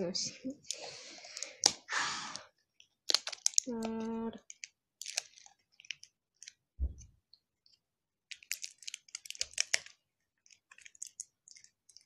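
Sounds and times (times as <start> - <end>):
plastic packaging clicking and crinkling: 2.7 - 12.0.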